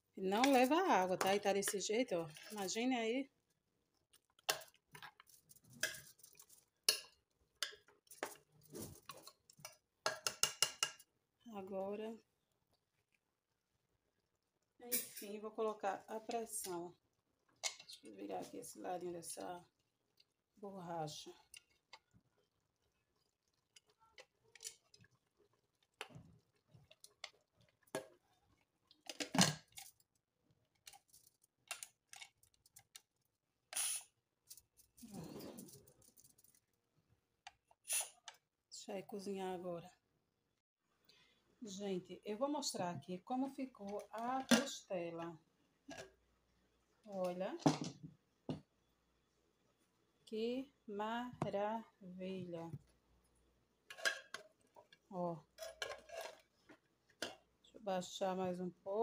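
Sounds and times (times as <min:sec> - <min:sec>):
metal spoon scraping a pot: 0:05.1 - 0:08.4, 0:37.9 - 0:38.3, 0:55.5 - 0:56.6.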